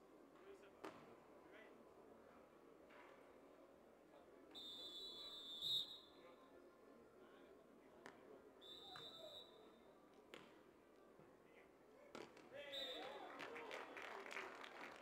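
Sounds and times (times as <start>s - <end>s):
referee's whistle blasts: 4.5s - 6.2s, 8.6s - 9.7s, 12.7s - 13.3s.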